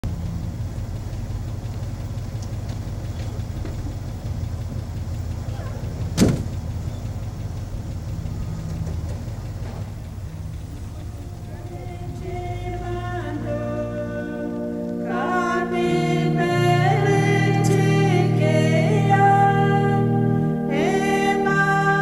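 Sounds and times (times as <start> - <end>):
vehicle engine idling: 0.0 - 22.0
sharp knock: 6.2 - 6.5.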